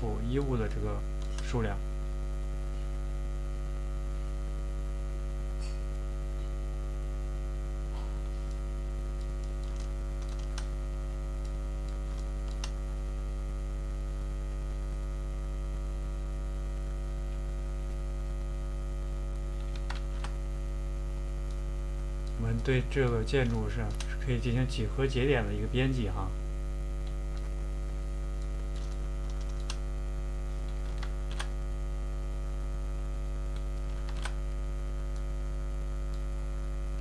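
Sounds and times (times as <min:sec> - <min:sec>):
electrical hum: 0:00.0 - 0:37.0
keyboard and mouse clicks: 0:01.2 - 0:01.6, 0:09.2 - 0:10.8, 0:11.4 - 0:12.8, 0:19.3 - 0:20.4, 0:22.2 - 0:24.2, 0:28.4 - 0:29.8, 0:30.5 - 0:31.6, 0:33.5 - 0:34.4.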